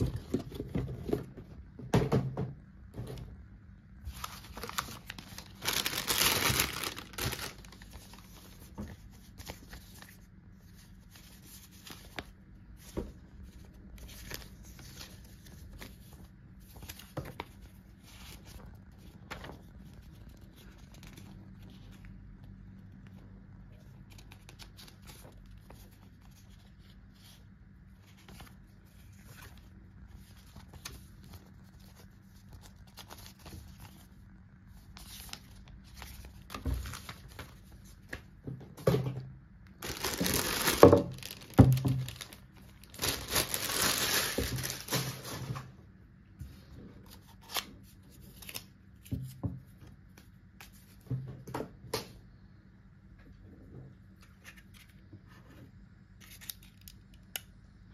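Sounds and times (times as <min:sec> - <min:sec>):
plastic bag crinkling: 0:04.1 - 0:08.5, 0:39.8 - 0:45.7.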